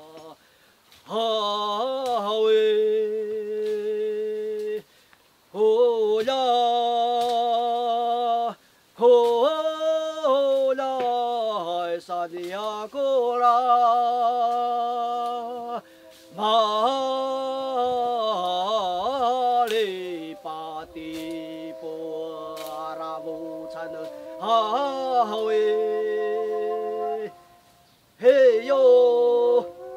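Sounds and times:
person singing a slow chant: 0.0 - 0.4, 1.0 - 4.9, 5.5 - 29.9
lower held note: 15.0 - 27.9, 29.0 - 29.9.

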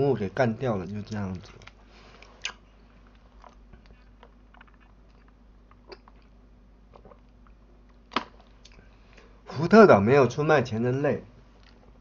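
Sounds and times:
person chewing food: 1.4 - 8.9.

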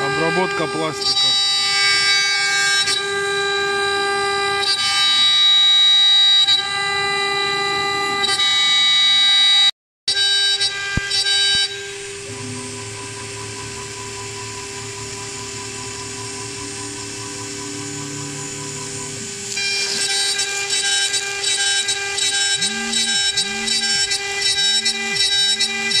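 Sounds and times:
router spindle whining: 0.0 - 9.5, 10.1 - 26.0
end mill cutting plastic: 10.6 - 26.0.

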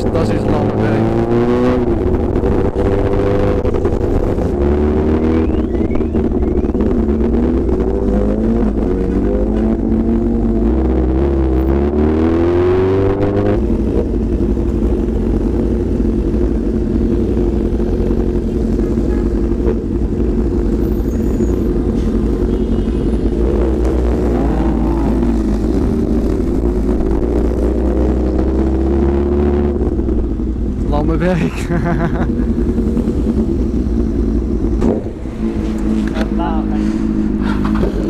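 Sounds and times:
motorcycle engine revving: 0.0 - 38.0.

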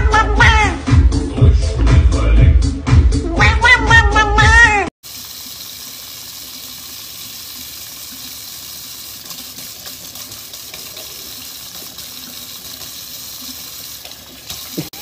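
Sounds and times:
loud music: 0.0 - 4.5
faucet running into sink: 5.0 - 15.0.

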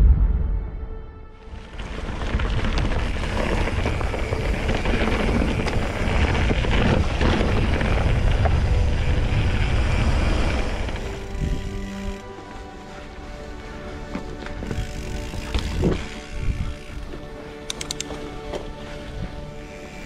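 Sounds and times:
wind rumble on microphone: 0.0 - 12.2, 14.6 - 17.3
light clicks: 17.6 - 18.3.

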